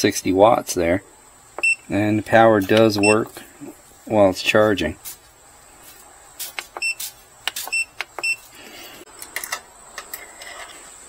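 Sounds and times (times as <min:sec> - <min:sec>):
short high electronic beeps: 0:06.8 - 0:07.1.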